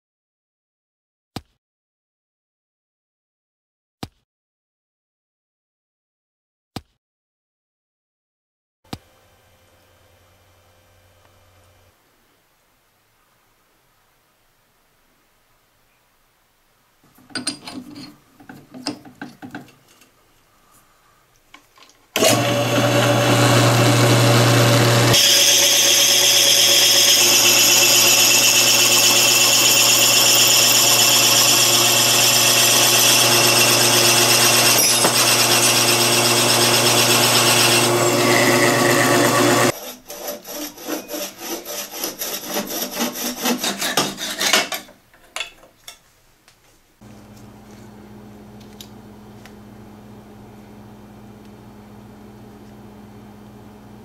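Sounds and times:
knocks and scrapes: 17.1 - 20.4, 42.6 - 46.8
drill press boring into wood: 22.2 - 39.7.

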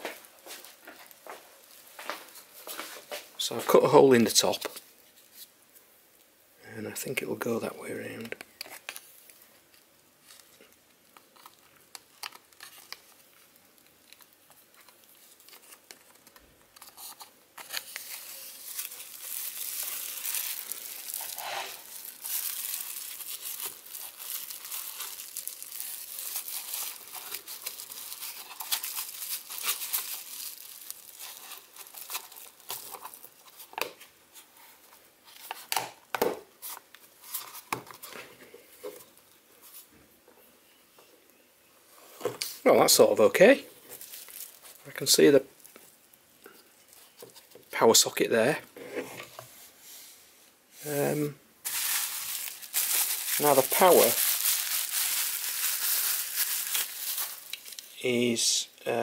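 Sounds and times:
bubble wrap crinkling: 8.6 - 35.8, 42.4 - 48.1, 51.1 - 58.0.

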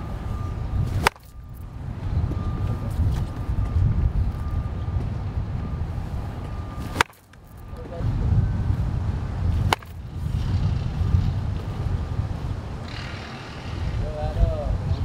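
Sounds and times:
wind rumble on microphone: 0.0 - 15.0
baseball bat cracking ball: 0.9 - 1.4, 6.9 - 7.6, 9.5 - 10.0.

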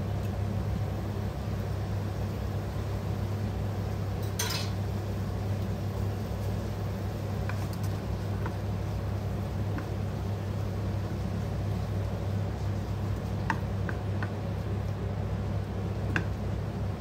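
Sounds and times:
low kitchen hum: 0.0 - 17.0
wooden spoon tapping frying pan: 9.6 - 10.0, 13.1 - 14.4.

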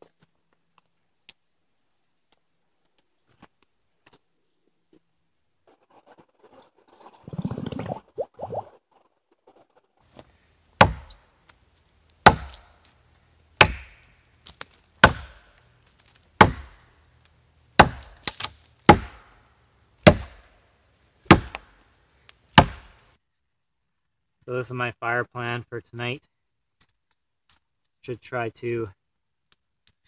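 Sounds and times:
axe chopping log: 10.2 - 11.2, 12.2 - 12.9, 13.6 - 15.5, 16.1 - 16.9, 17.8 - 19.3, 20.0 - 20.5, 21.3 - 21.7, 22.6 - 23.0.

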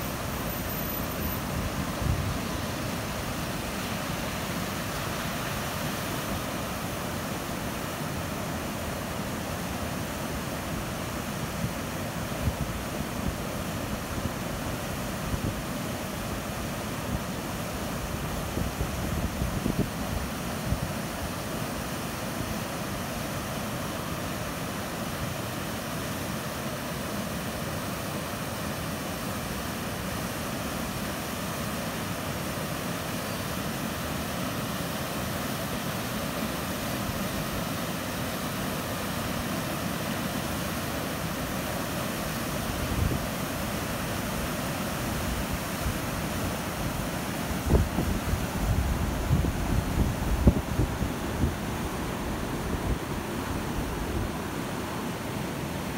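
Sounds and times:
floodwater rushing: 27.5 - 55.9.

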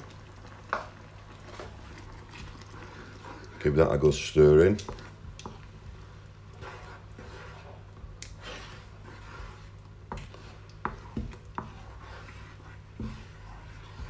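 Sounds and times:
spoon scraping in pan: 6.5 - 14.0.

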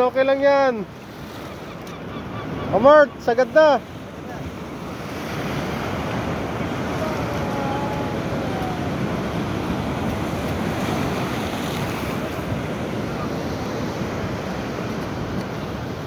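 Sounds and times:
ocean surf breaking on rocks: 0.0 - 16.0
wind buffeting microphone: 4.6 - 16.0.

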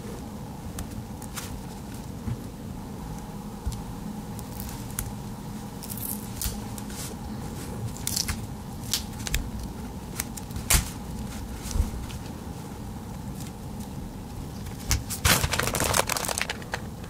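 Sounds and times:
tape tearing rustles: 14.6 - 16.8.

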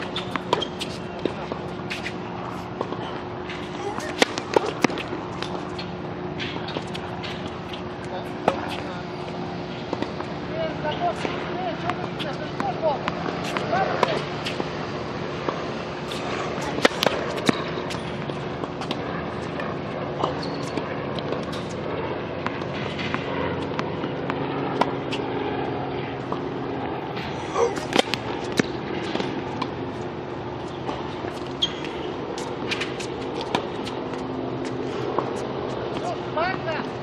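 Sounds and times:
tennis ball bouncing and struck: 0.0 - 25.2, 26.2 - 36.9
steady background hum: 0.0 - 37.0.

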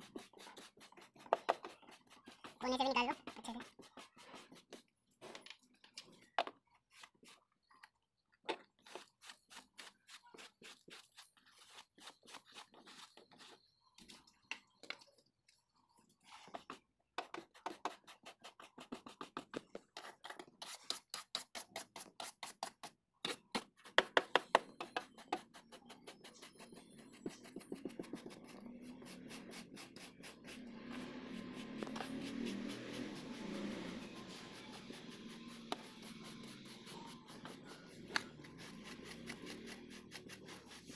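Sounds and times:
brush scrubbing carpet: 25.3 - 40.9.

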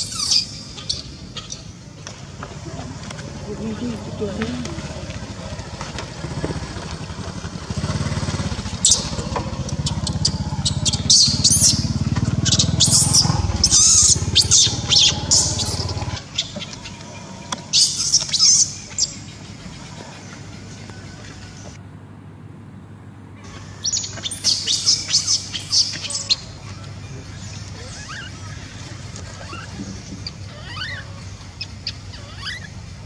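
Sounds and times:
baby monkey squealing: 0.0 - 1.6, 8.8 - 16.6, 27.8 - 32.8
low motor hum: 2.0 - 21.8.

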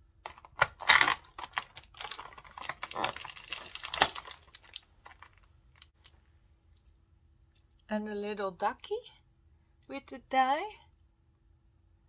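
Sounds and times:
plastic packet crinkling: 0.3 - 6.2.

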